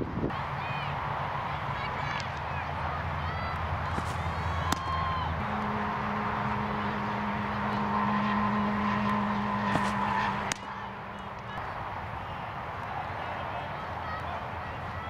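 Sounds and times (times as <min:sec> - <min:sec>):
steady background hum: 0:00.0 - 0:15.0
baseball smacking into mitt: 0:03.9 - 0:04.9, 0:09.7 - 0:10.7.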